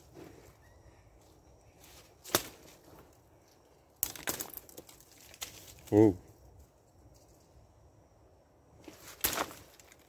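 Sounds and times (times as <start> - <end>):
blade slashing through undergrowth: 8.9 - 10.0.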